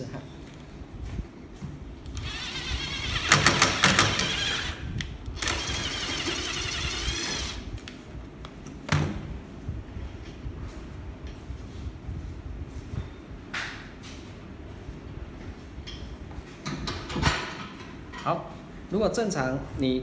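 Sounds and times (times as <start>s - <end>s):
impact drill whirring: 2.1s - 7.7s.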